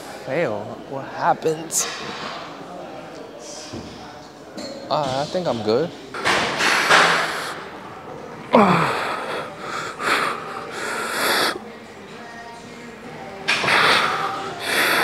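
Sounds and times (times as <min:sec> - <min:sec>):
hissing exhalations: 0:06.6 - 0:07.7, 0:08.6 - 0:11.6, 0:13.5 - 0:15.0.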